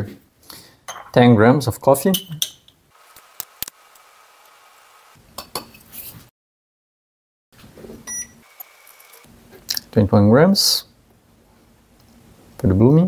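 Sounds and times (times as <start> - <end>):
glass cups clinking: 0.9 - 1.2.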